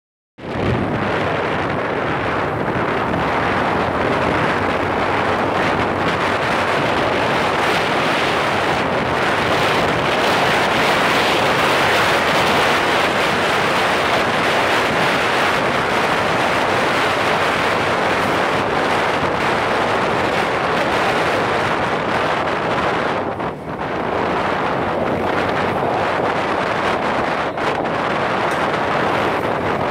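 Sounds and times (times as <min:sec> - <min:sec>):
motorcycle engine and road noise: 0:00.4 - 0:29.9
wind on microphone: 0:00.4 - 0:29.9.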